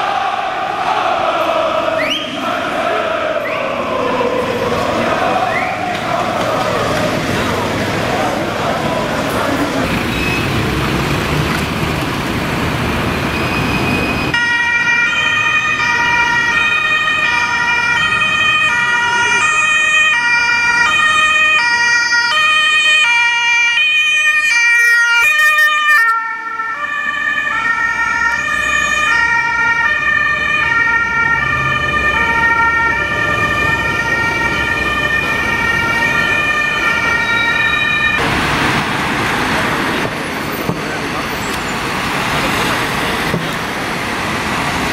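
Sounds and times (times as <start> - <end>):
road traffic: 0.0 - 44.9
two-tone ambulance siren: 13.1 - 38.9.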